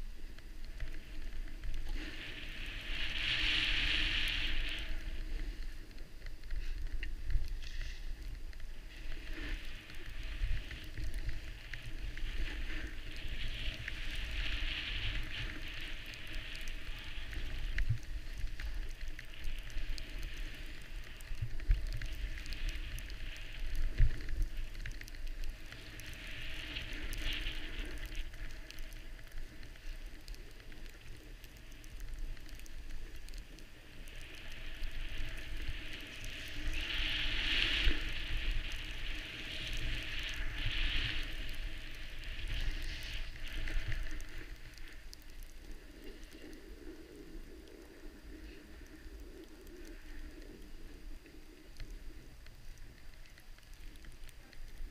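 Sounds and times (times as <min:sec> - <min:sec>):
skis scraping over snow: 0:00.0 - 0:52.3
wind rumble on microphone: 0:00.0 - 0:54.9.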